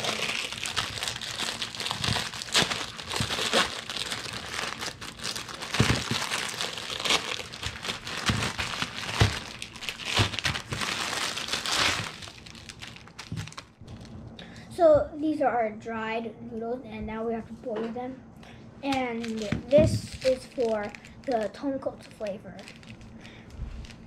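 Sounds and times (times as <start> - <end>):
plastic wrapper crinkling: 0.0 - 14.1, 18.9 - 24.0.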